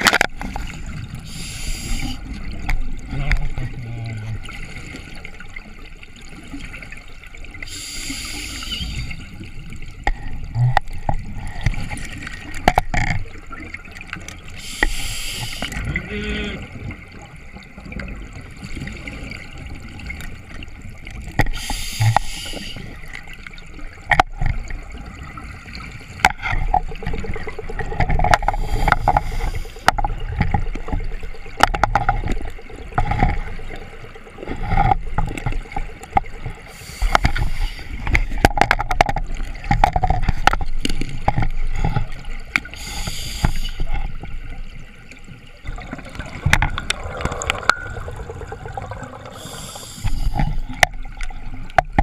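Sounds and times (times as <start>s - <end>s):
exhaled air bubbling: 0.0s - 52.0s
regulator inhalation hiss: 1.3s - 2.2s, 7.7s - 9.0s, 14.6s - 15.7s, 21.5s - 22.9s, 42.7s - 43.8s, 49.3s - 50.4s.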